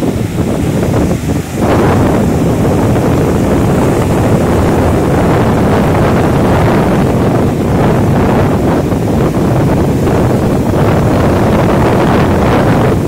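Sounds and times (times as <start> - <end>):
surf breaking on beach: 0.0 - 13.0
wind buffeting microphone: 0.0 - 13.0.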